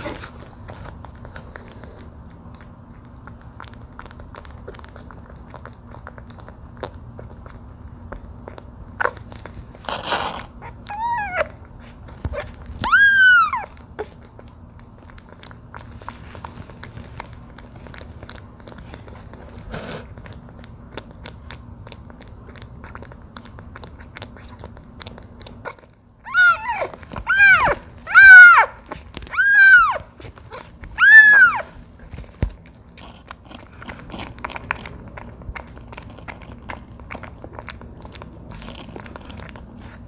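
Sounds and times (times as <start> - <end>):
kitten suckling wet clicks: 0.0 - 40.0
kitten mewing: 9.9 - 14.4, 25.5 - 31.7.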